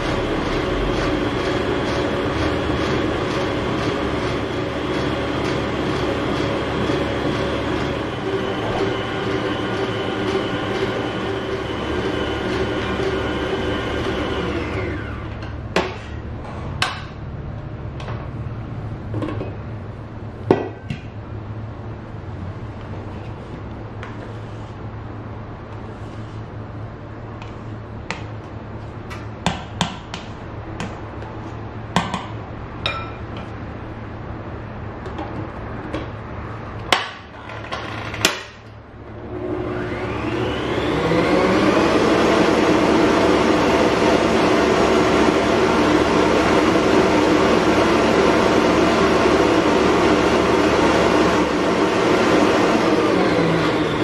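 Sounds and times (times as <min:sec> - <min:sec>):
stand mixer motor running: 0:00.0 - 0:15.4, 0:39.2 - 0:54.0.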